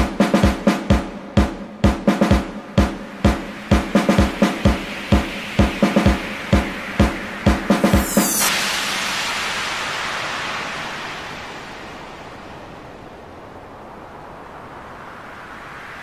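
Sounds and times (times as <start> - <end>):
drum-backed music: 0.0 - 8.7
steady rushing noise: 0.0 - 16.0
cymbal crash ringing: 7.2 - 12.8.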